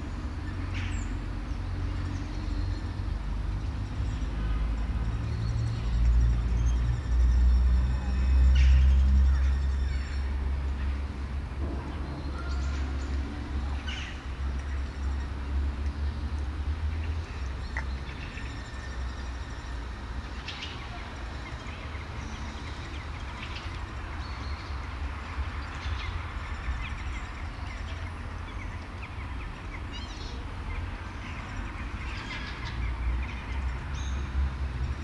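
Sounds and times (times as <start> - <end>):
small birds chirping: 11.9 - 35.0.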